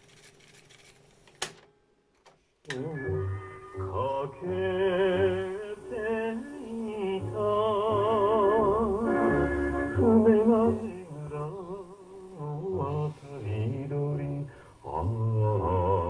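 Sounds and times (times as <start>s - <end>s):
tape music through small speaker: 2.7s - 11.7s.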